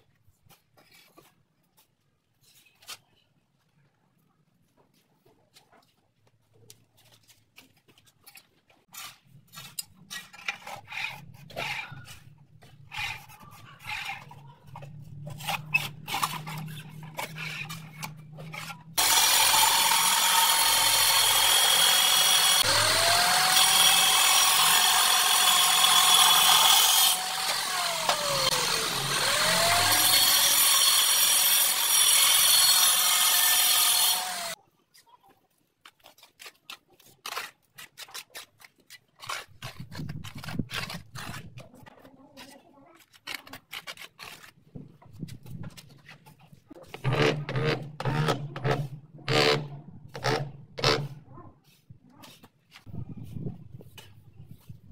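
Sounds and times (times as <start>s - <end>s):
angle grinder cutting tile: 12.9s - 34.6s.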